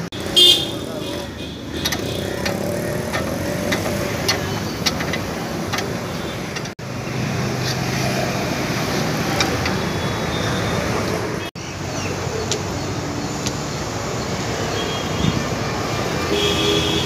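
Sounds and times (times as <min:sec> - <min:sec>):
road traffic and engines: 0:00.0 - 0:17.0
spanner clicking on a bolt: 0:01.7 - 0:06.7.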